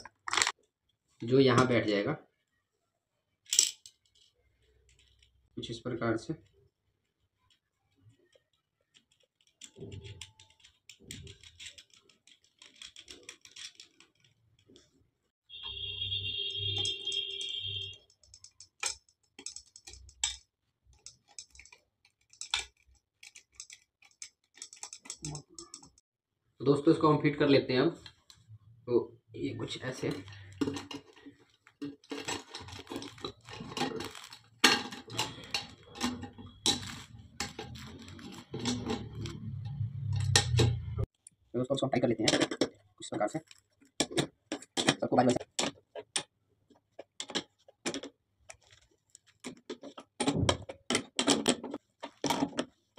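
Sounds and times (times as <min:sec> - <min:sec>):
metal nuts clicking and rattling: 0:03.4 - 0:05.5, 0:07.1 - 0:15.0, 0:16.6 - 0:26.0, 0:29.6 - 0:41.0, 0:42.1 - 0:52.9.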